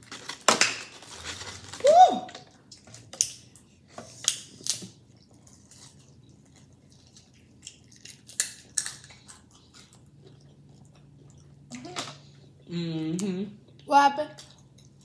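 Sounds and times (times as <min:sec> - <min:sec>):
plastic bag crackling: 0:00.0 - 0:02.3
food crunching: 0:00.0 - 0:12.7.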